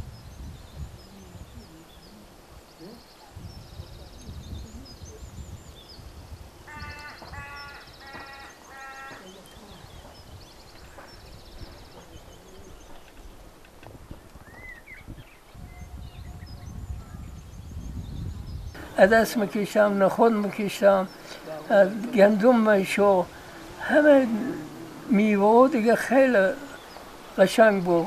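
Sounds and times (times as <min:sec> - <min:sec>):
low wind rumble: 0:00.0 - 0:28.0
small birds chirping: 0:00.0 - 0:28.0
livestock bleating: 0:06.7 - 0:09.4.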